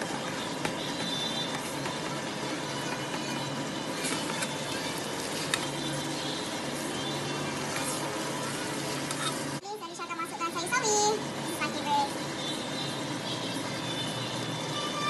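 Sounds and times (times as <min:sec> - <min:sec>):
spatula stirring in a pan: 0:00.2 - 0:09.6.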